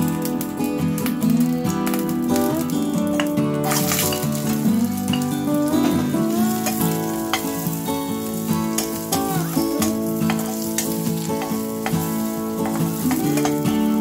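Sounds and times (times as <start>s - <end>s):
carrots sizzling in oil: 0.0s - 14.0s
music with held notes: 0.0s - 14.0s
spatula scraping a pan: 3.6s - 4.5s, 6.6s - 13.9s.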